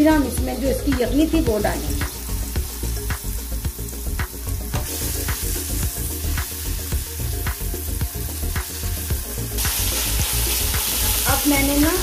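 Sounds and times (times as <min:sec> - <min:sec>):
background music with beat: 0:00.0 - 0:12.0
vegetables sizzling in hot oil: 0:00.1 - 0:12.0.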